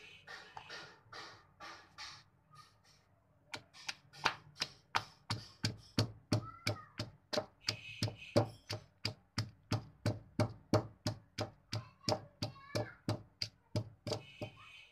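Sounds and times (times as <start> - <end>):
pestle pounding in stone mortar: 3.6 - 14.6.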